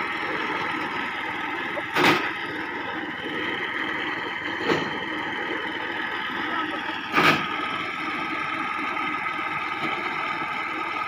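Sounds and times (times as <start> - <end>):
conveyor loader engine running: 0.0 - 11.0.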